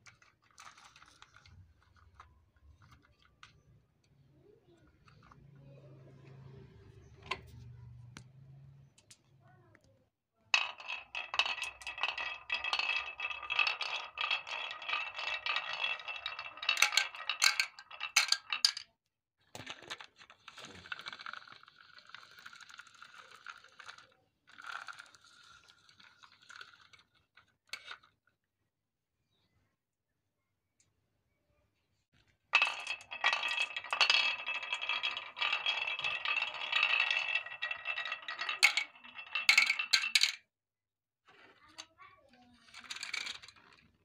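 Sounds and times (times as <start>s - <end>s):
marbles clacking into plastic bucket: 0.0s - 6.5s, 10.6s - 18.9s, 19.5s - 28.1s, 32.6s - 40.5s, 42.6s - 44.0s
marbles rolling on wooden track: 0.0s - 7.8s, 10.5s - 18.9s, 19.5s - 28.2s, 32.6s - 40.5s, 41.4s - 44.0s.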